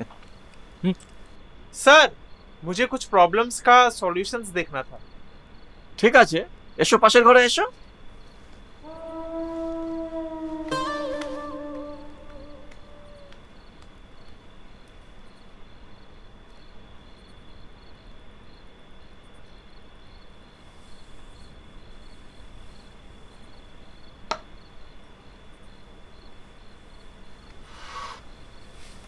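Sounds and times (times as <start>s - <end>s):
faint high-pitched whine: 0.0s - 29.0s
low hum: 8.8s - 13.4s.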